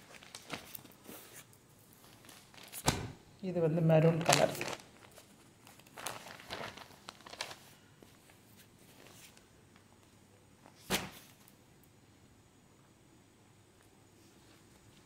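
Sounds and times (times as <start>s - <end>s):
cloth rustling: 0.0s - 2.9s, 4.0s - 9.4s.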